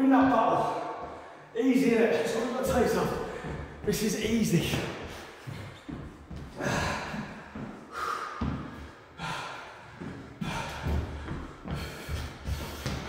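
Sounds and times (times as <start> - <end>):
footsteps thudding on wooden floor: 2.4 - 9.0, 9.9 - 13.0
man breathing hard: 6.3 - 13.0.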